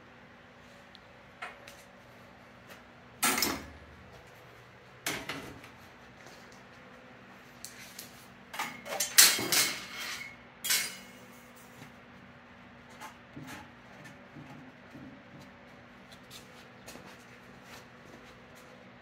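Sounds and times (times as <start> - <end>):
sheet metal covers clanking: 8.6 - 11.3.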